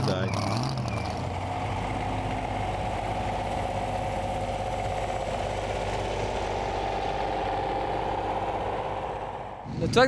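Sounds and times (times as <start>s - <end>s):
tractor engine idling: 0.8s - 10.0s.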